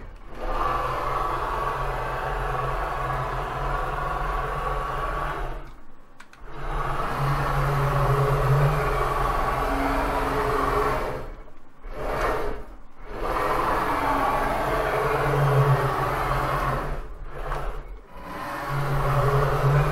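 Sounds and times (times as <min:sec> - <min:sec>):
servo motors whining: 0:06.4 - 0:19.9.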